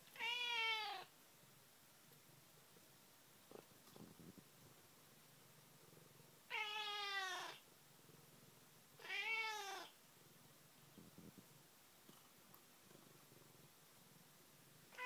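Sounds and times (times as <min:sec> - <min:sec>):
cat meowing: 0:00.1 - 0:01.1, 0:06.5 - 0:07.6, 0:09.0 - 0:10.0.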